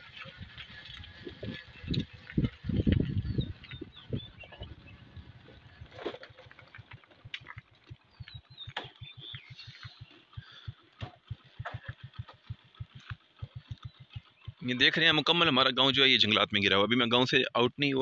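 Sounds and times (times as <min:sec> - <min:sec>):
footsteps on stony path: 0:00.0 - 0:14.6
bird chirps: 0:01.1 - 0:15.3
sharp clicks: 0:06.6 - 0:14.7.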